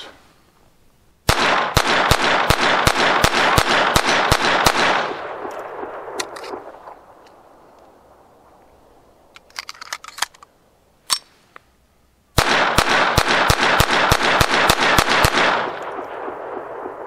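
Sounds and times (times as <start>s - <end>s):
rapid pistol shots: 1.3s - 5.4s, 12.4s - 17.0s.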